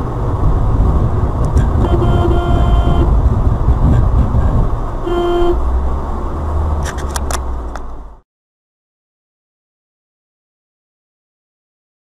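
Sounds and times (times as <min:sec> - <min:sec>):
car driving rumble: 0:00.0 - 0:08.2
car horn honking: 0:01.5 - 0:05.7
sharp clicks: 0:06.8 - 0:07.9.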